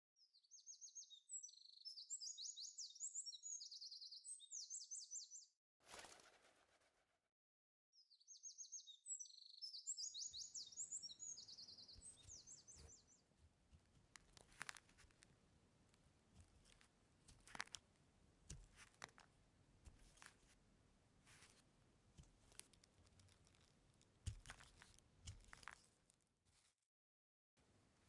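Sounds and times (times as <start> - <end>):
small bird chirping: 0.2 - 5.5, 8.0 - 15.2.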